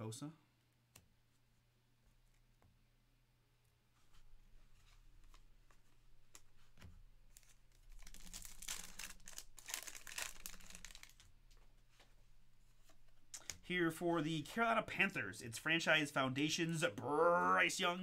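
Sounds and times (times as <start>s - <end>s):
wrapper tearing and crinkling: 7.4s - 11.3s.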